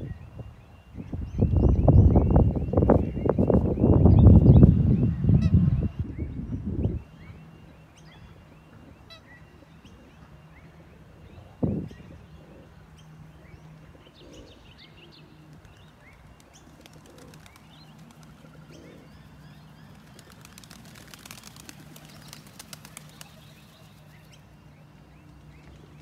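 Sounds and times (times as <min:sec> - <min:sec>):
small birds chirping: 0:00.0 - 0:26.0
clicks and flutters: 0:20.0 - 0:24.0.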